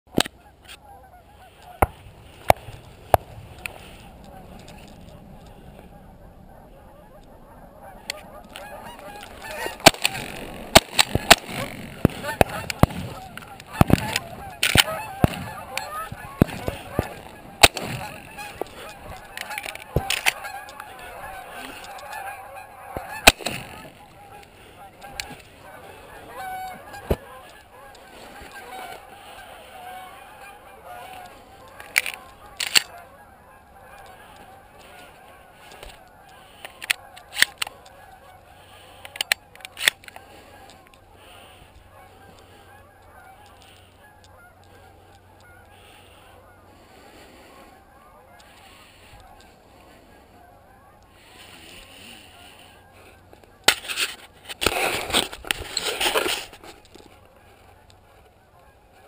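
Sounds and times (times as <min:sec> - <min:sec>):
geese honking: 0:00.1 - 0:59.0
sharp bangs: 0:09.3 - 0:20.4, 0:23.0 - 0:24.0
shotgun blasts: 0:09.5 - 0:18.4, 0:23.1 - 0:24.0.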